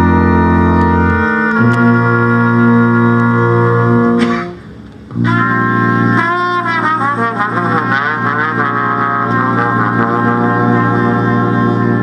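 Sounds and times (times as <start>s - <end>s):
brass quintet playing chords: 0.0s - 12.0s
wavering solo brass line: 0.0s - 12.0s.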